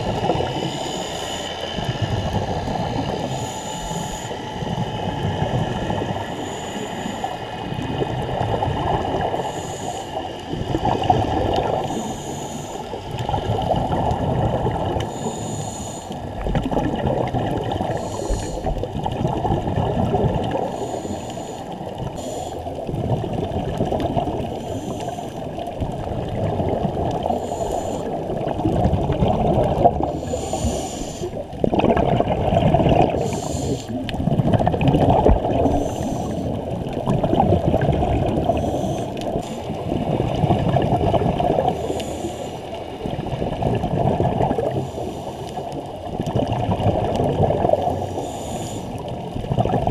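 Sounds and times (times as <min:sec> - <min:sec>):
exhaled bubbles gurgling underwater: 0:00.0 - 0:49.9
regulator hiss: 0:00.3 - 0:04.8, 0:05.7 - 0:07.6, 0:09.3 - 0:10.5, 0:11.8 - 0:13.0, 0:15.0 - 0:16.4, 0:17.8 - 0:18.8, 0:20.6 - 0:22.8, 0:24.5 - 0:25.6, 0:27.2 - 0:28.2, 0:30.1 - 0:31.5, 0:33.1 - 0:34.1, 0:35.6 - 0:36.7, 0:38.4 - 0:39.9, 0:48.0 - 0:49.1.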